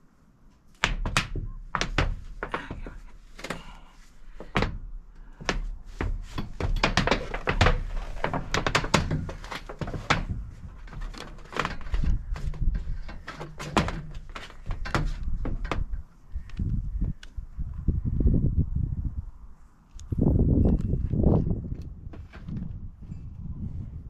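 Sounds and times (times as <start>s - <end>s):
knocks and clunks of metal hardware: 5.4s - 16.0s
steady low rumble: 15.2s - 22.1s.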